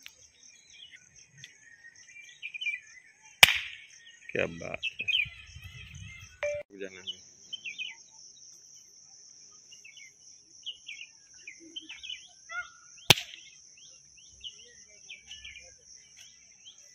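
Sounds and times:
birds chirping: 0.0s - 16.9s
leaf popping: 3.4s - 3.8s, 13.1s - 13.4s.

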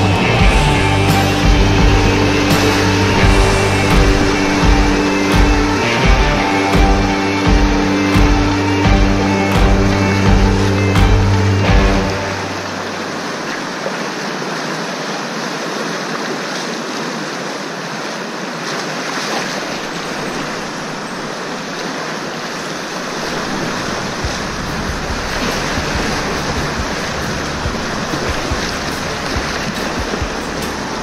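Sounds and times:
low rumble: 0.0s - 13.4s, 23.2s - 31.0s
rushing whitewater: 0.0s - 31.0s.

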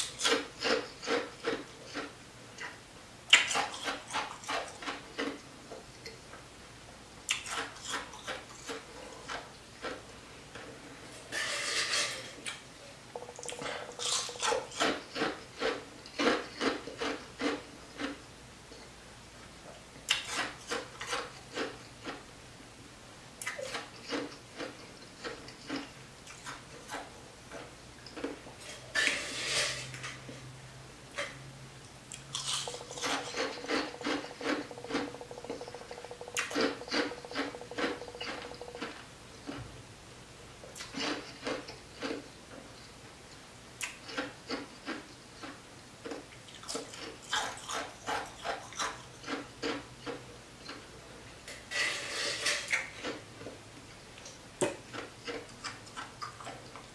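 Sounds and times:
crushed ice being chewed: 0.0s - 2.7s, 13.2s - 18.2s, 23.4s - 30.2s, 32.1s - 39.7s, 43.8s - 50.8s
faint steady hum: 0.0s - 56.9s
spoon scraping in ice: 11.3s - 12.4s, 29.0s - 30.1s, 32.4s - 38.8s, 51.7s - 52.8s.

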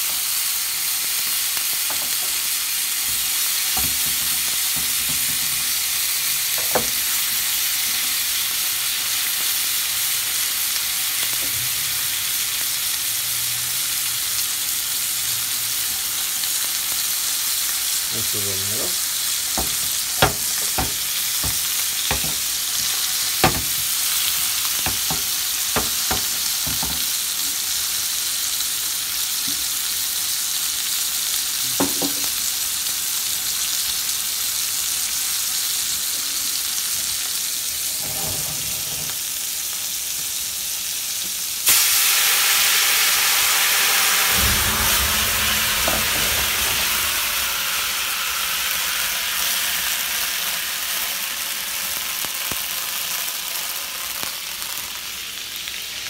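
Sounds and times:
steaks sizzling in skillet: 0.0s - 56.0s
low rumble of flames: 44.2s - 48.0s.

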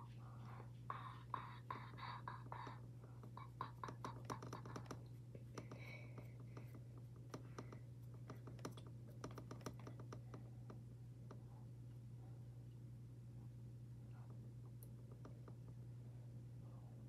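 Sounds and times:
soft breaths: 0.0s - 8.6s
fingertips tapping skin: 1.4s - 10.4s.

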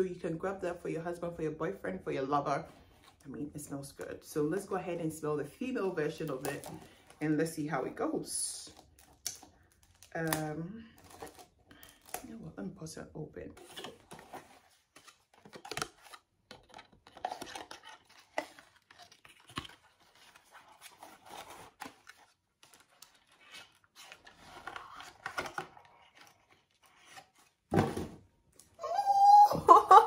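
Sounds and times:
packaging tearing and scraping: 13.6s - 27.7s.

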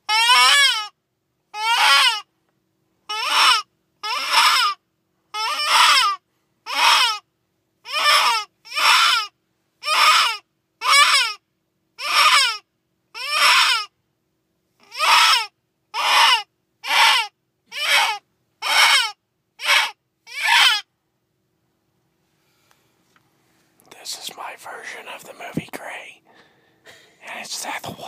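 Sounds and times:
wailing distress cry from caller: 0.1s - 0.9s, 1.6s - 2.3s, 3.1s - 4.8s, 5.4s - 7.2s, 7.9s - 11.4s, 12.0s - 12.6s, 13.2s - 13.9s, 14.9s - 20.8s.

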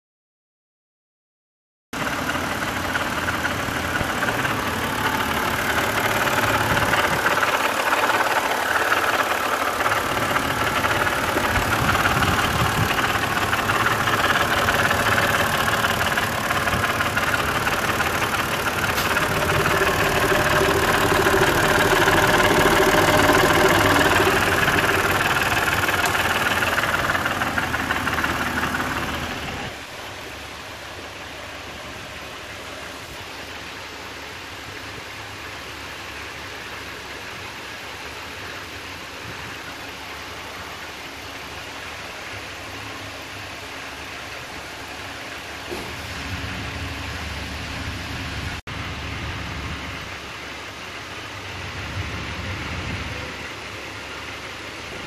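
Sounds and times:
car engine running: 2.0s - 33.0s
rattle from engine: 2.0s - 55.0s.

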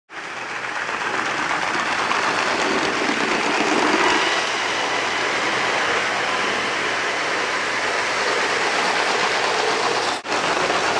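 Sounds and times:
wheels rolling on rails: 0.1s - 10.9s
toy train motor whirring: 0.2s - 10.9s.

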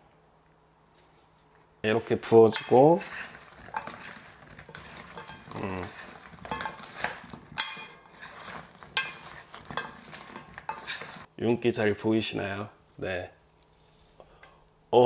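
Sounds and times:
utensils scraping a metal pan: 2.3s - 11.3s.

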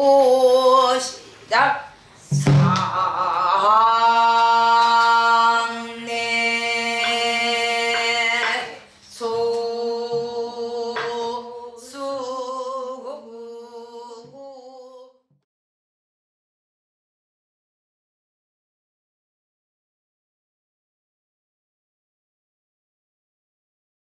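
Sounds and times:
woman singing long notes: 0.0s - 1.2s, 2.3s - 15.3s.

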